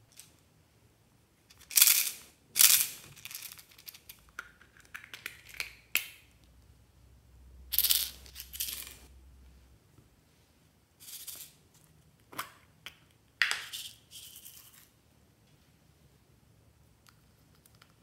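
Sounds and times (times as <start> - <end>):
plastic pieces rattling: 1.5 - 4.2.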